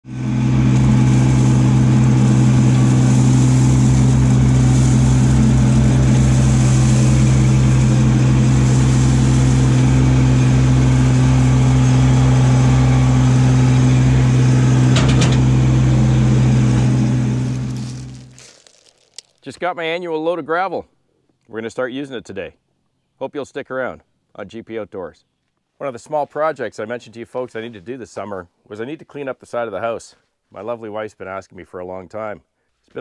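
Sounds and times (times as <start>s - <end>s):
tractor diesel engine running: 0.0s - 18.4s
gravel tipping from loader bucket: 17.2s - 19.6s.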